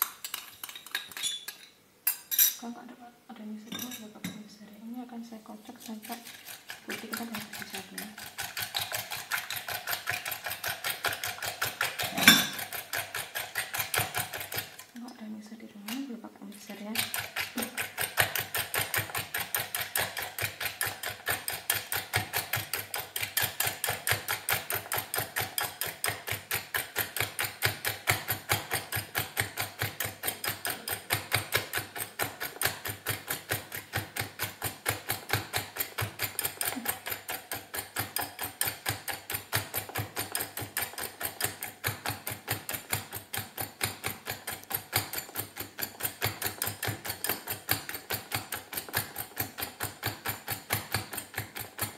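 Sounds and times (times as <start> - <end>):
wire whisk clicking against glass bowl: 35.3 - 51.9.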